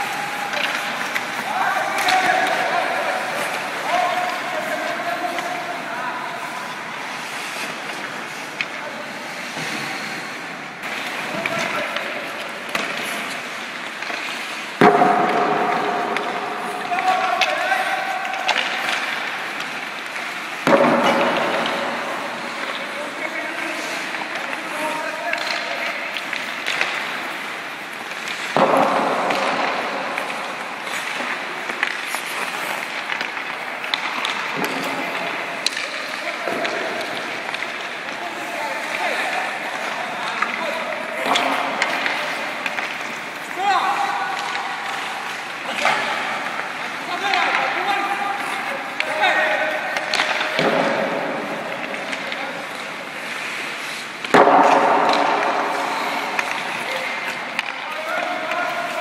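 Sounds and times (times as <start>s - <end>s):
skates scraping on ice: 0.0s - 59.0s
stick and puck clacks: 0.0s - 59.0s
sharp crack: 54.2s - 58.5s.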